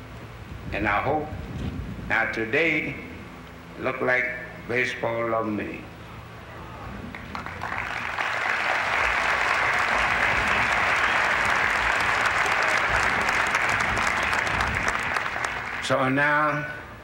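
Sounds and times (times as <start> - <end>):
crowd applauding: 7.1 - 16.0.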